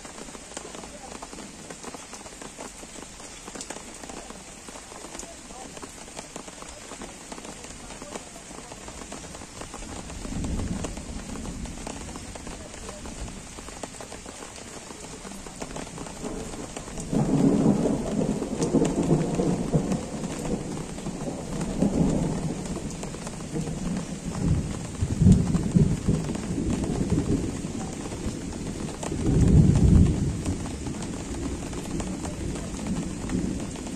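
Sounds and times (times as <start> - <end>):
gentle rain falling: 0.0 - 33.9
distant thunder rolling: 14.8 - 33.9.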